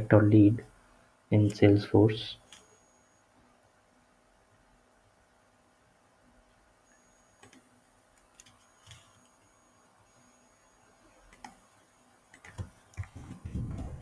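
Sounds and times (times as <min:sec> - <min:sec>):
computer mouse clicks: 0:02.4 - 0:02.8, 0:07.4 - 0:09.3, 0:11.3 - 0:11.6, 0:12.3 - 0:14.0
typing on keyboard: 0:12.3 - 0:14.0.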